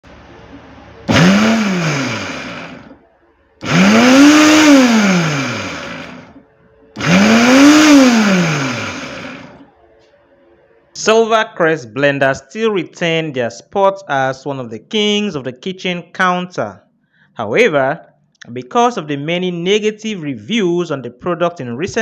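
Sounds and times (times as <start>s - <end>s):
blender motor whirring: 1.1s - 3.0s, 3.6s - 6.4s, 7.0s - 9.7s.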